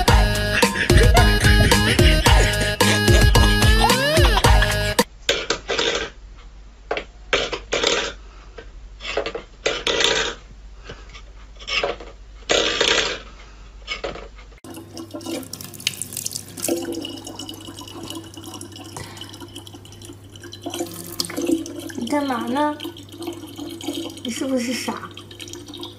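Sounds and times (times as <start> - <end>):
water running into plastic bottle: 14.6 - 25.9.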